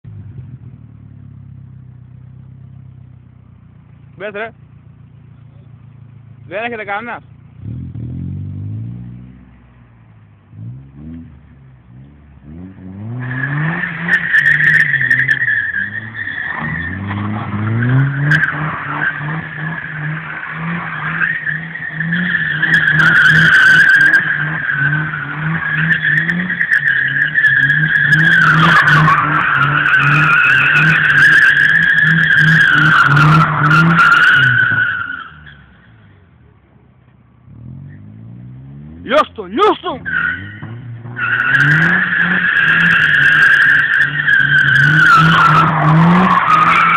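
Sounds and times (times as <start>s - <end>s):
car engine revving: 0.0s - 36.2s, 37.4s - 46.9s.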